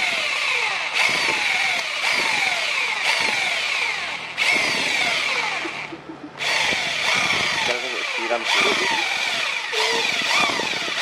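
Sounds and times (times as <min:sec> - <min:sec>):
electric drill boring through steel: 0:00.0 - 0:11.0.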